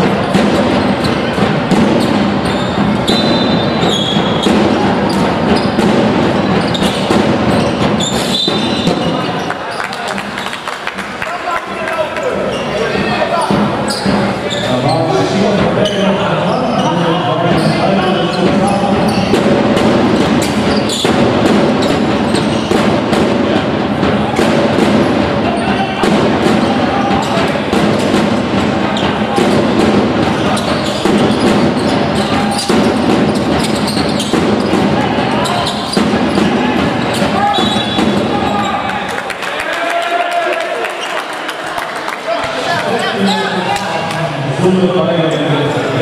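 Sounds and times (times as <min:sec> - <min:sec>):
basketball bouncing: 0:00.0 - 0:09.4, 0:17.5 - 0:38.8
loud crowd din: 0:00.0 - 0:46.0
sports hall noise: 0:00.0 - 0:46.0
shoes squeaking: 0:00.2 - 0:10.6, 0:12.4 - 0:19.5, 0:20.1 - 0:22.8, 0:30.3 - 0:39.0.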